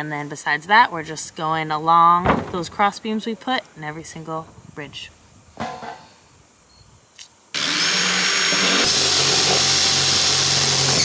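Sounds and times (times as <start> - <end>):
power driver motor: 7.6 - 11.0.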